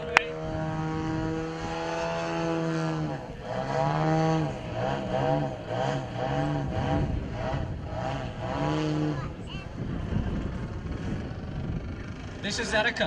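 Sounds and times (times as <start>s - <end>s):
model airplane engine droning: 0.0s - 8.4s.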